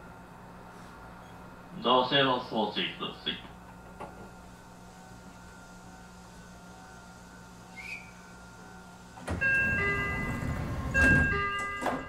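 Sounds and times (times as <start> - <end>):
electric train humming: 0.0 - 12.0
two-note electronic door chime: 9.3 - 12.0.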